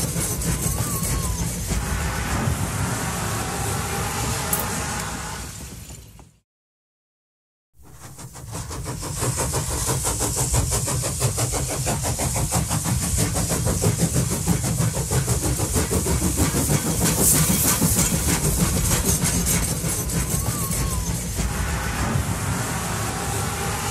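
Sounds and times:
hiss: 0.0s - 5.9s, 7.8s - 23.9s
train engine rumble: 0.0s - 6.4s, 7.8s - 23.9s.

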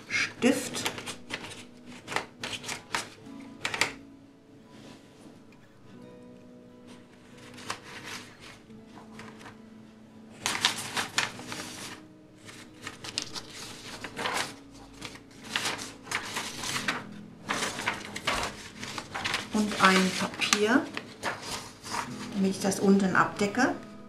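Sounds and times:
paper being picked up: 0.0s - 4.0s, 6.9s - 9.6s, 10.4s - 22.4s
rustles and light clicks: 10.4s - 22.3s.

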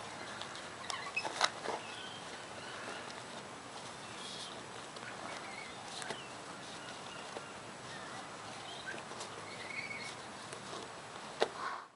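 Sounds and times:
puppies chewing cardboard roll: 0.0s - 11.5s
bird chirps: 0.9s - 3.1s, 4.0s - 10.2s.

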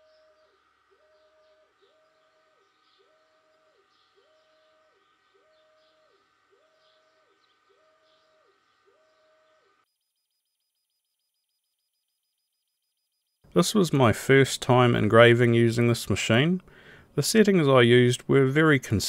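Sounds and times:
laser engraver motors whining: 0.0s - 10.9s.

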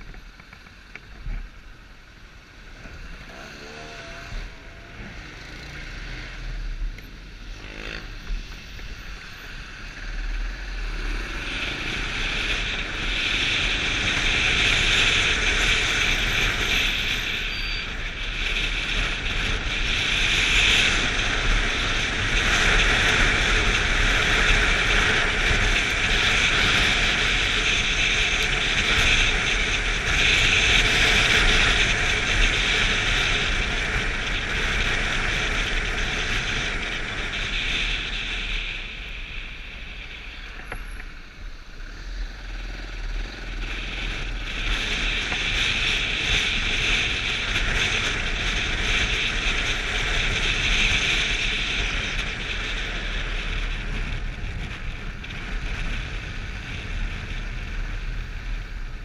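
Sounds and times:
motorcycle running: 0.0s - 59.0s
rushing wind: 0.0s - 59.0s.

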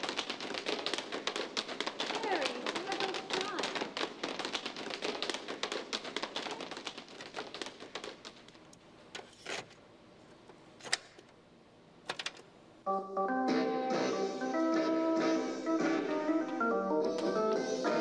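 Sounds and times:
tapping on paper plates: 0.0s - 8.6s.

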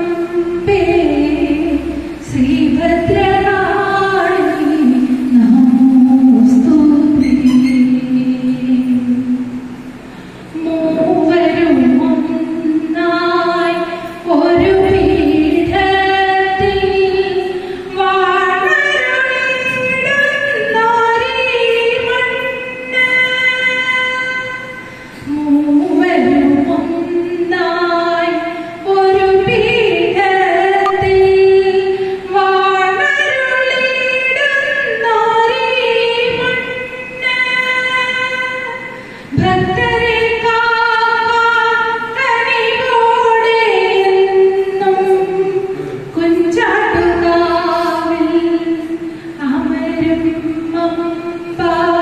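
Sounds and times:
woman singing unaccompanied: 0.0s - 9.7s, 10.5s - 52.0s
singer breathing: 10.0s - 10.5s, 39.0s - 39.4s, 49.0s - 49.4s.

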